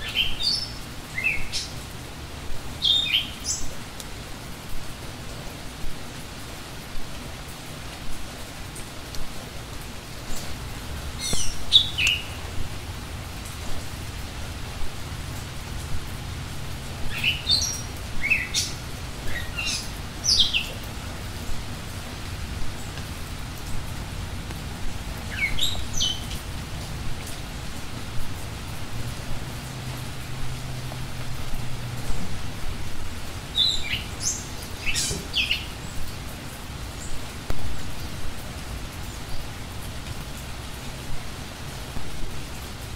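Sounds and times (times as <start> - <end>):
small birds chirping: 0.0 - 1.9, 2.8 - 3.8, 11.1 - 12.6, 17.0 - 21.1, 25.2 - 26.5, 33.4 - 36.2
steady background hiss: 0.0 - 42.9.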